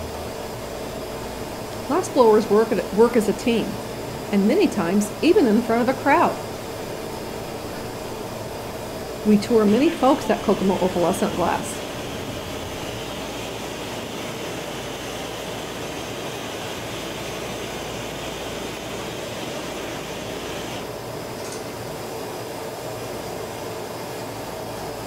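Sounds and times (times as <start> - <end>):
gas torch flame hissing: 0.0 - 21.0
burners roaring: 1.5 - 14.7.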